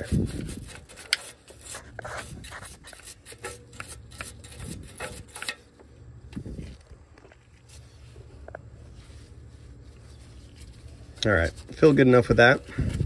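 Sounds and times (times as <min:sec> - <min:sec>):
brush scrubbing metal: 0:00.0 - 0:05.7.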